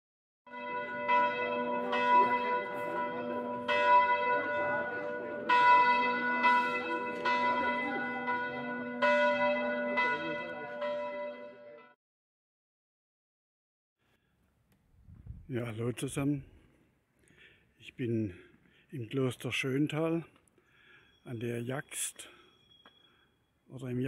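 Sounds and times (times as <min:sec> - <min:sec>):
church bells ringing: 0:00.5 - 0:12.0.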